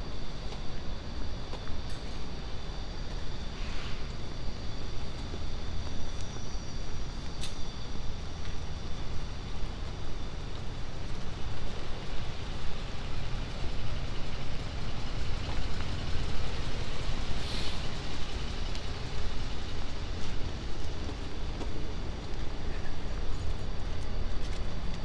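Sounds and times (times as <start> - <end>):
traffic rumble: 0.0 - 25.0
short hiss: 17.3 - 18.0.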